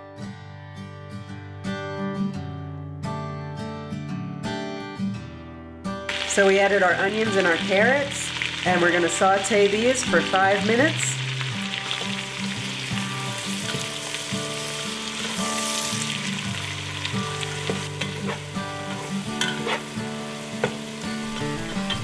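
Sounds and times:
vegetables sizzling in a pot: 6.1s - 22.0s
spatula stirring and scraping: 17.4s - 22.0s.

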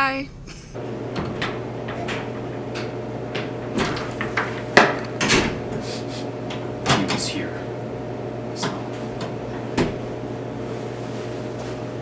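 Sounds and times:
steady low hum: 0.0s - 12.0s
door hardware clunk: 1.0s - 5.8s, 6.4s - 7.4s, 8.6s - 10.1s
footsteps: 8.6s - 12.0s.

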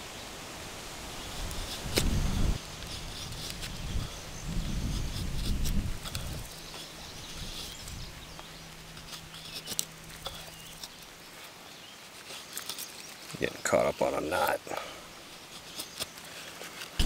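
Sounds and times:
knife blade scraping wood: 2.8s - 13.2s, 15.2s - 17.0s.

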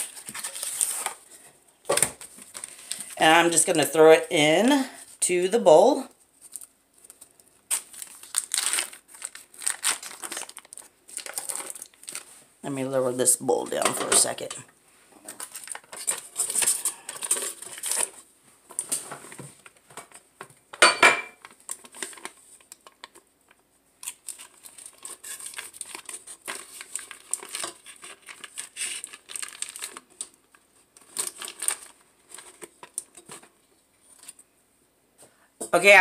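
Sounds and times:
wrapper crinkling: 0.0s - 1.4s, 2.2s - 3.7s, 6.3s - 12.4s, 15.3s - 18.3s, 21.4s - 23.2s, 24.0s - 34.4s.

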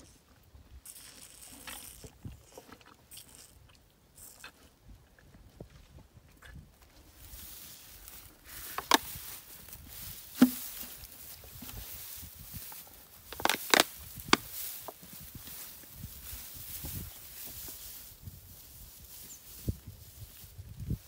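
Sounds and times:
footsteps in dry grass: 5.3s - 21.0s.

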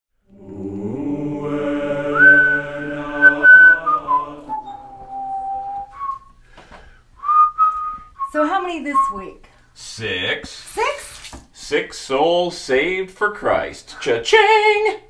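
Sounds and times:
choir of voices holding chord: 0.2s - 5.2s
person whistling: 2.1s - 6.4s, 7.2s - 9.3s.

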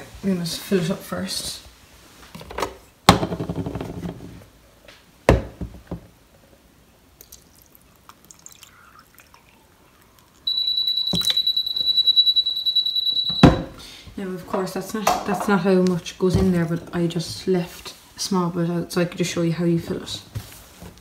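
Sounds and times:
water pouring from jug: 7.2s - 10.5s
high-pitched electronic tone: 10.4s - 13.6s.

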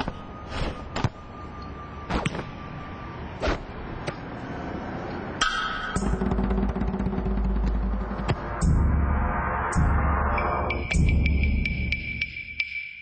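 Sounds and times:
low steady musical tone: 6.0s - 13.0s.

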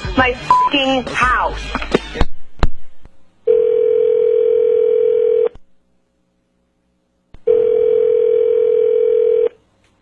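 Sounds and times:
telephone ringback tone: 3.5s - 5.5s, 7.5s - 9.6s.

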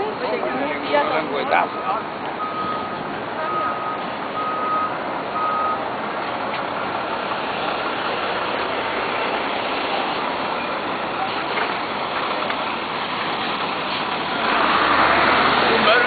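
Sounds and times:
city street traffic: 0.0s - 16.0s
truck reversing alarm beeps: 1.1s - 5.9s.

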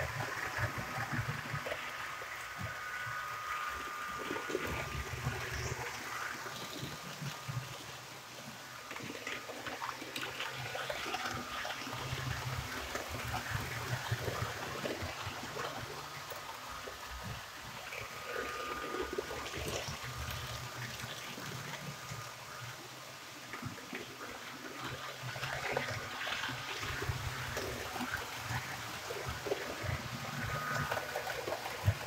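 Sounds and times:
faint high motor whine: 0.0s - 32.0s
model train motor hum: 0.0s - 32.0s.

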